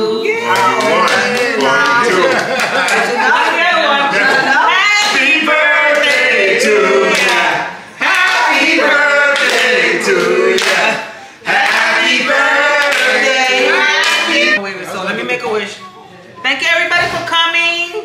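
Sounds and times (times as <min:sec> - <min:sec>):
group singing a birthday song: 0:00.0 - 0:14.6
hand clapping: 0:00.5 - 0:03.1, 0:07.1 - 0:12.1, 0:14.0 - 0:14.3.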